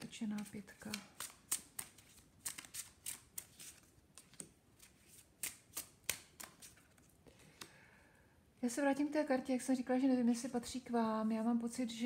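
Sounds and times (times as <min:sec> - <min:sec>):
cards clicking and flicking: 0:00.4 - 0:07.0.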